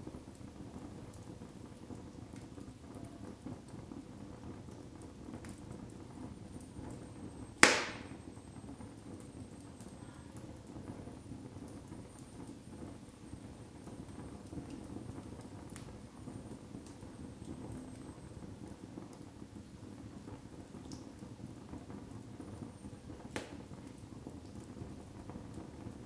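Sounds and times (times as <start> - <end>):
low rush of flames: 0.0 - 26.0
loud sharp pop of burning wood: 7.6 - 8.2, 23.3 - 23.7
faint wood crackles: 7.6 - 19.3, 20.2 - 26.0.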